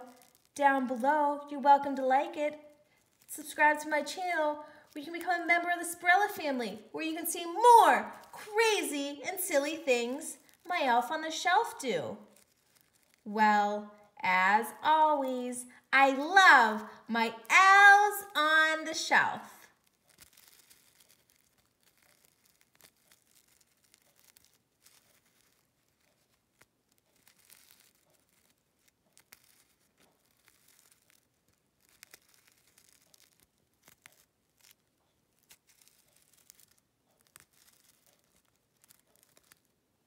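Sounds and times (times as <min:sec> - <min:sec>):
sequins rustling and clicking: 0:00.0 - 0:00.6, 0:02.4 - 0:14.2, 0:19.6 - 0:39.8.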